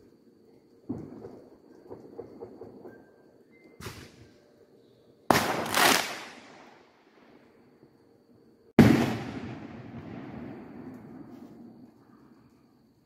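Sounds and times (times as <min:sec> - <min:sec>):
fireworks exploding: 0:05.3 - 0:06.8, 0:08.8 - 0:11.7.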